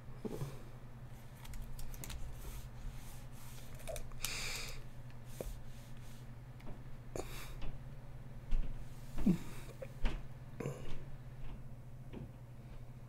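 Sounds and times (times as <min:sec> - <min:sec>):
steady low hum: 0:00.0 - 0:13.0
computer keyboard clicks: 0:01.4 - 0:02.2.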